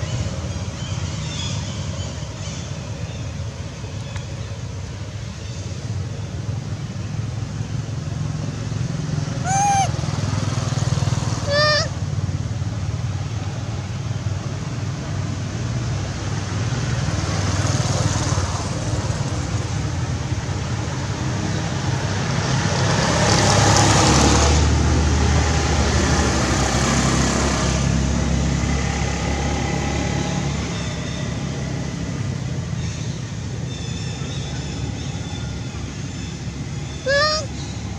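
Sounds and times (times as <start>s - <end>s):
low engine rumble: 0.0s - 16.8s, 27.9s - 37.9s
passing vehicle: 0.0s - 37.9s
short high-pitched call: 9.4s - 9.9s, 37.1s - 37.5s.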